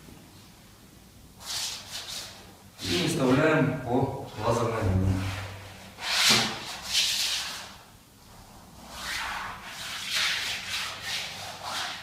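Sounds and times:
wallpaper rustling and swishing: 5.1 - 12.0.

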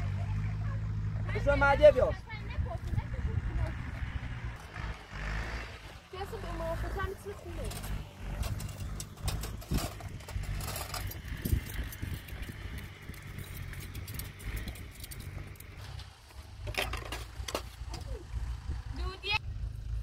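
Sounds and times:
engine running: 0.0 - 20.0.

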